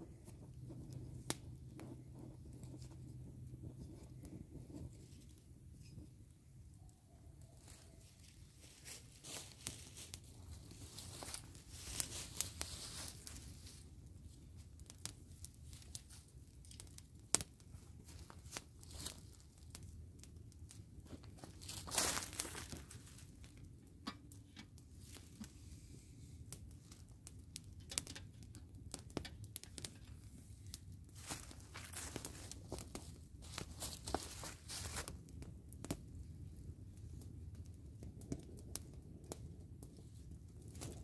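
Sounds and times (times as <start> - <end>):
dry leaves rustling and crunching: 7.6 - 13.8, 18.2 - 19.4, 21.2 - 23.3, 31.2 - 35.1.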